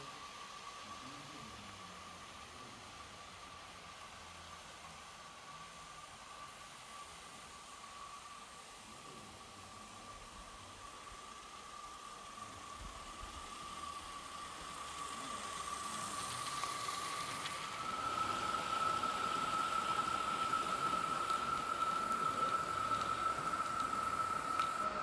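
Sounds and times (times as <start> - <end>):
steam locomotive hissing: 0.0 - 25.0
steady high tone: 12.4 - 25.0.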